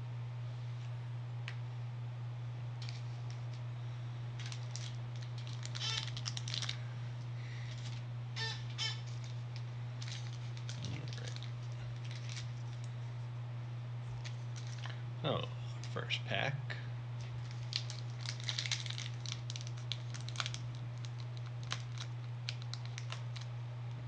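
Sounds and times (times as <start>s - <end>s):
steady low hum: 0.0s - 24.0s
card packaging crinkling: 2.8s - 3.6s, 4.4s - 6.9s, 7.5s - 8.0s, 8.8s - 13.0s, 14.2s - 15.0s, 17.2s - 24.0s.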